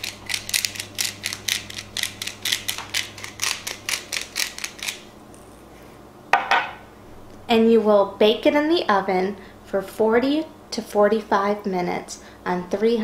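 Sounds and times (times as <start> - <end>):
pepper mill grinding: 0.0 - 5.7.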